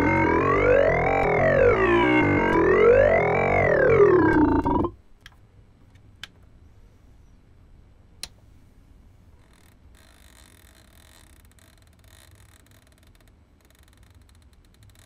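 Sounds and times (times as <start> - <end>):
faint low hum and hiss: 4.9 - 15.0.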